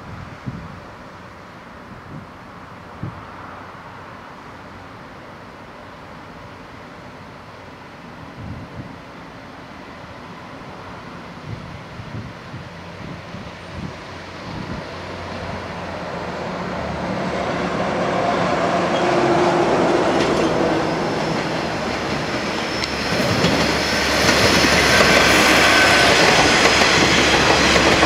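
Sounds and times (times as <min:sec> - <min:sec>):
diesel train engine passing: 0:00.3 - 0:28.0
train wheels on rails: 0:08.2 - 0:28.0.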